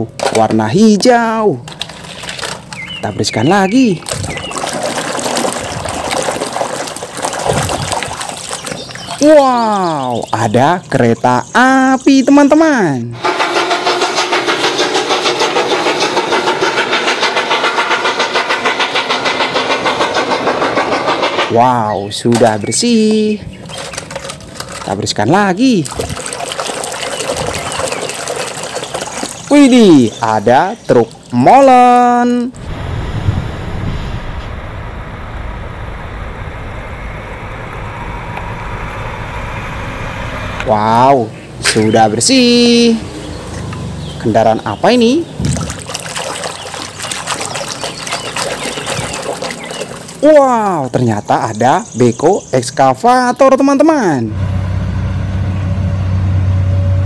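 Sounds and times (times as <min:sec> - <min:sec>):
truck diesel engine running: 0:13.2 - 0:21.8, 0:32.6 - 0:41.6
steam locomotive chuffing: 0:13.2 - 0:23.6, 0:32.6 - 0:43.3.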